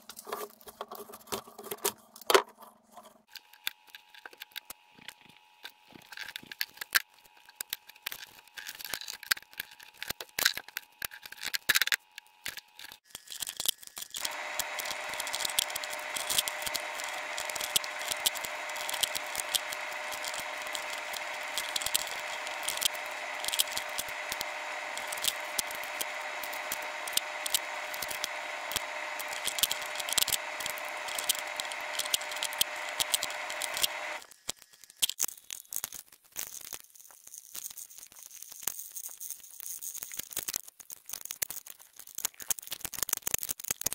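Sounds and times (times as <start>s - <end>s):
whirring noise with held tones: 3.2s - 34.7s.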